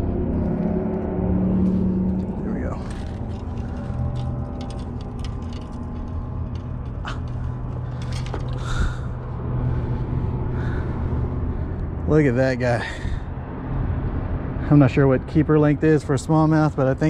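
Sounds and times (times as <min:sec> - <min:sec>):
low engine hum: 0:00.0 - 0:17.0
clicks and rustles handling fish: 0:02.1 - 0:09.0.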